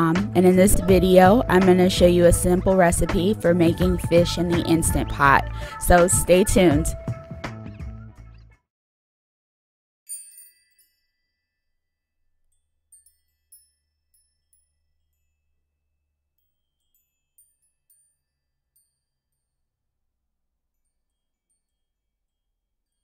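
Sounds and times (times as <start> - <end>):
intro music: 0.0 - 8.4
bright chime: 10.1 - 15.5, 16.4 - 19.5
faint tinkling chime notes: 10.1 - 19.8, 20.6 - 23.0.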